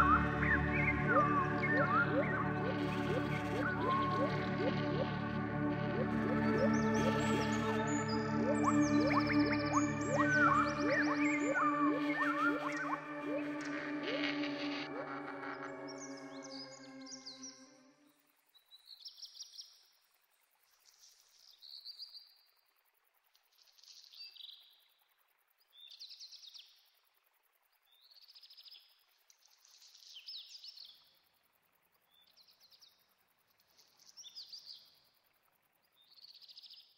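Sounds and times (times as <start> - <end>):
songbird singing: 0.0 - 17.8.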